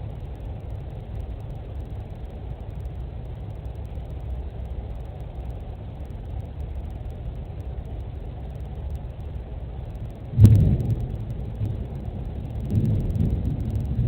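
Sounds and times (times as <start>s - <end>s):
thunderstorm rumbling: 10.2s - 14.0s.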